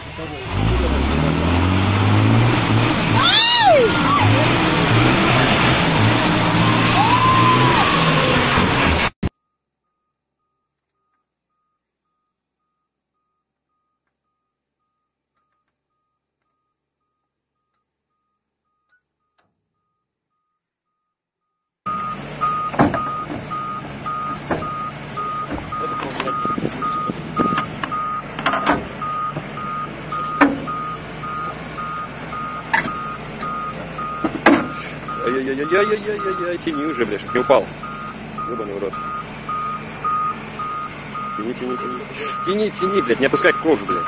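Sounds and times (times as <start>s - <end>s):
diesel engine running: 0.0s - 9.2s, 21.9s - 44.0s
reversing alarm beeping: 21.9s - 44.0s.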